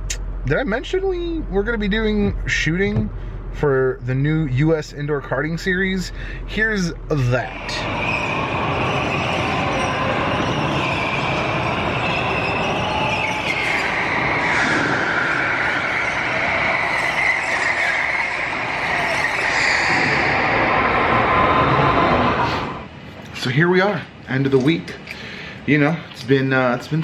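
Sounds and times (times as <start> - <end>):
go-kart motors whining: 6.2 - 22.9.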